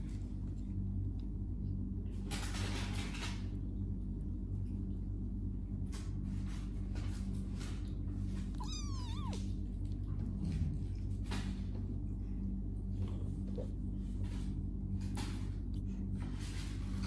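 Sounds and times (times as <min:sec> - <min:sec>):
kittens purring: 0:00.0 - 0:17.0
kitten mewing: 0:08.5 - 0:09.6.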